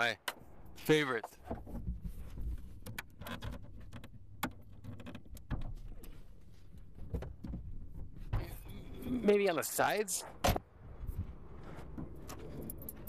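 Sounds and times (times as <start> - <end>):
handling clicks and knocks: 1.1 - 8.6.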